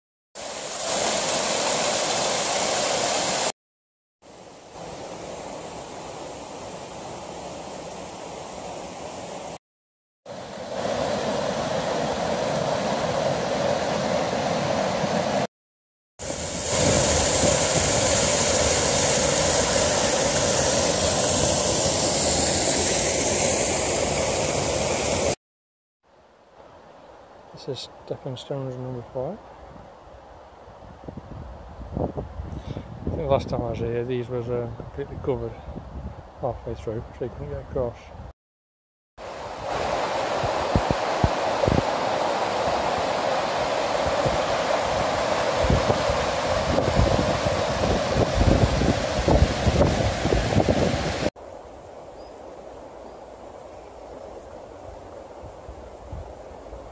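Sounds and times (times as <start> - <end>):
small waterfall rushing: 0.4 - 3.5, 10.3 - 15.5, 16.2 - 25.4, 39.2 - 51.4.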